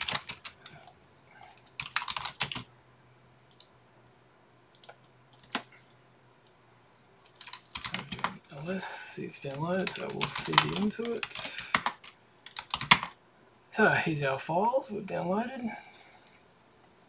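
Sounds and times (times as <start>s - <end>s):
keyboard keystrokes: 9.9s - 13.1s.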